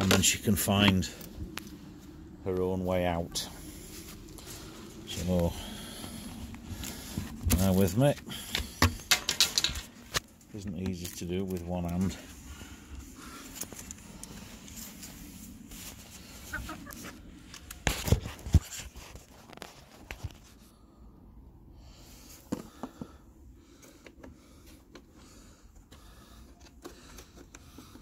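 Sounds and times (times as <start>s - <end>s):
hens clucking: 16.3s - 17.2s.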